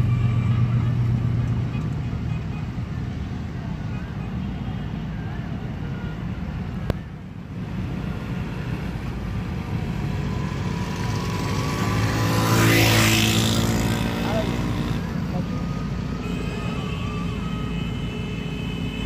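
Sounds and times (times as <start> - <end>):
small motorcycle engine passing: 9.8 - 15.1.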